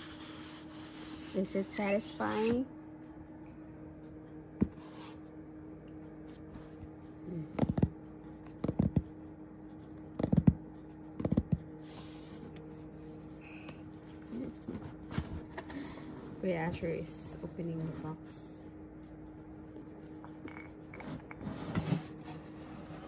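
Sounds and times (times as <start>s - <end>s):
faint steady hum: 0.0s - 23.0s
fingers tapping on cardboard box: 7.5s - 9.0s, 10.1s - 11.7s.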